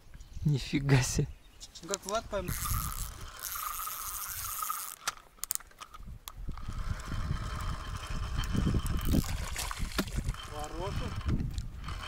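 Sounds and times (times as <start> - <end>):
fishing reel clicks: 2.0 - 9.4
fishing reel whirring: 2.4 - 12.0
wind rumble on microphone: 6.0 - 12.0.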